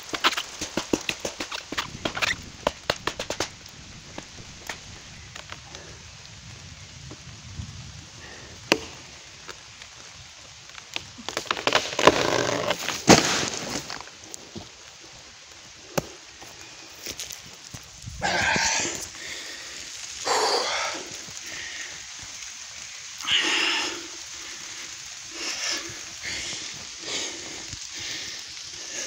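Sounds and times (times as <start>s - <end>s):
tree falling with crackling crash: 0.0s - 29.0s
machete chopping tree trunk: 0.1s - 3.6s.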